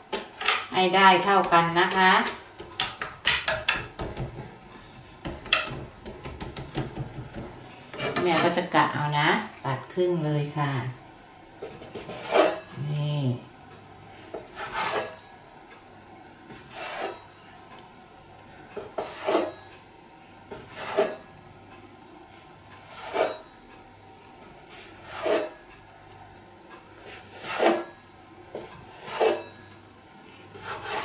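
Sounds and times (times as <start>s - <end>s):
bench scraper chopping dough: 1.4s - 4.6s, 5.2s - 8.6s, 11.8s - 12.6s, 14.4s - 15.1s, 16.6s - 17.2s, 18.9s - 19.6s, 20.5s - 21.2s, 22.9s - 23.4s, 25.0s - 25.6s, 27.1s - 27.9s, 28.6s - 29.5s, 30.6s - 31.0s
scraper rasping on wooden board: 30.6s - 31.0s.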